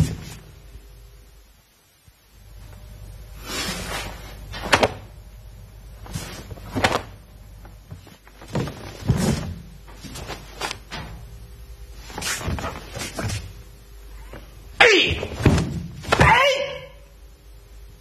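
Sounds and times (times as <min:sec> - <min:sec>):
fabric swishing and snapping: 0:03.4 - 0:05.2, 0:06.0 - 0:11.1, 0:12.0 - 0:13.6
dull thuds: 0:06.0 - 0:11.4, 0:15.1 - 0:16.4.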